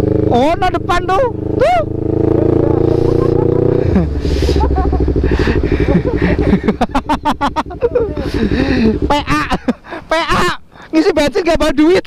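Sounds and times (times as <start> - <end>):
motorcycle engine running: 0.0 - 9.9.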